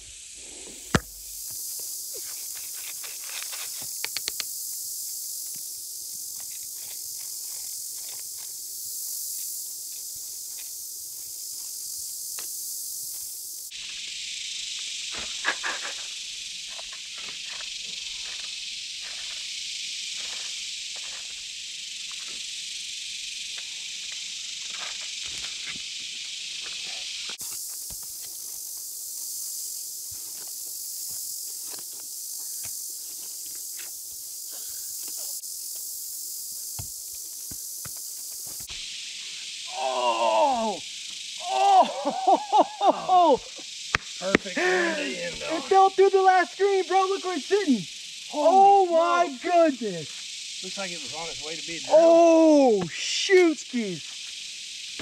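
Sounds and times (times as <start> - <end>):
insects chirring: 0.0 - 55.0
scrapes of digging in dirt: 0.6 - 4.5, 5.5 - 8.7, 15.1 - 19.5, 24.6 - 26.0, 30.0 - 35.9
sharp knock: 0.9 - 1.3.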